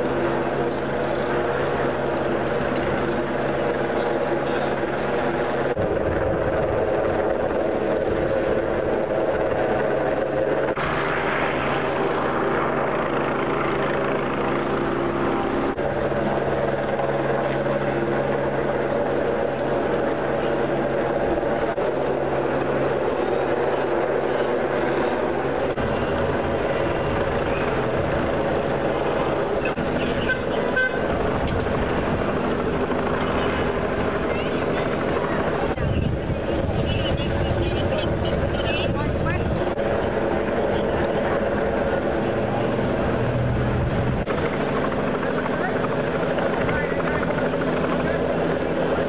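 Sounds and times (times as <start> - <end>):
city street noise: 0.0 - 49.0
helicopter flying overhead: 0.0 - 49.0
car horn toots: 30.2 - 31.1.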